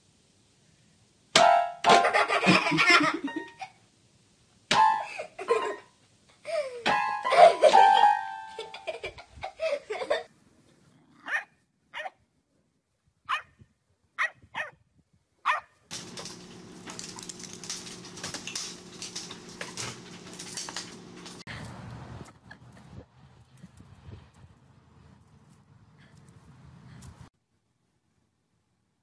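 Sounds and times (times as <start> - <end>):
dog barking: 11.2 - 12.2, 13.3 - 13.5, 14.2 - 14.8, 15.4 - 15.8
low hum with hiss: 15.9 - 22.5.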